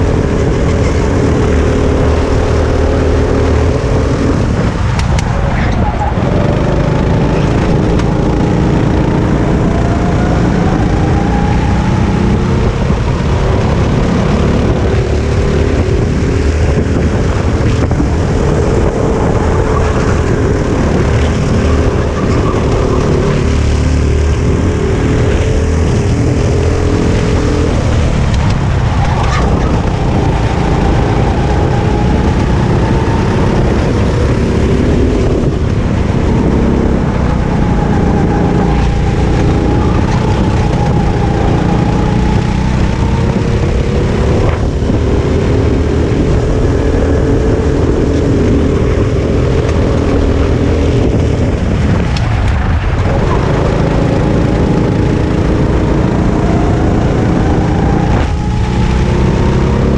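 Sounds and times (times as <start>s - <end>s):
kart engine running hard: 0.0s - 59.9s.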